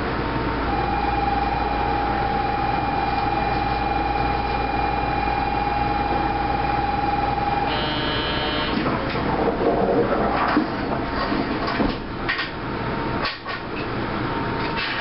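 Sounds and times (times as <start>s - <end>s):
stopped train humming: 0.0s - 9.5s
high electronic warning tone: 0.6s - 8.8s
multi-note electronic tone: 0.7s - 8.8s.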